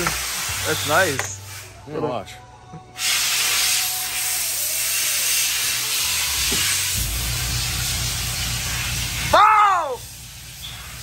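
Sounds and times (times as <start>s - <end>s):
steady loud hiss: 0.0s - 1.9s, 3.0s - 11.0s
low rumble: 6.9s - 9.2s.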